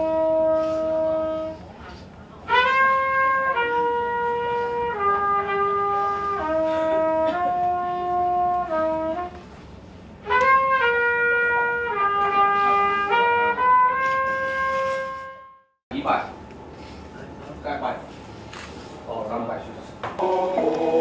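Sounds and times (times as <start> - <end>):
brass instrument slow melody: 0.0 - 15.7.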